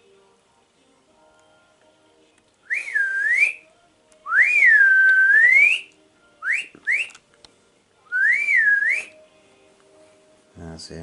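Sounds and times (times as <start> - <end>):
person whistling: 2.7 - 3.7, 4.3 - 7.2, 8.1 - 9.2.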